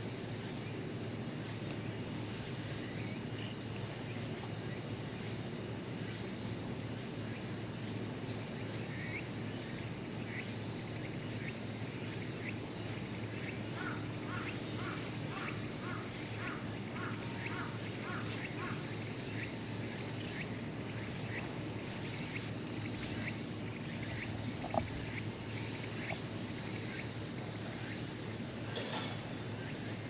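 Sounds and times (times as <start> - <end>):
outdoor background noise: 0.0 - 30.0
birds chirping: 7.2 - 30.0.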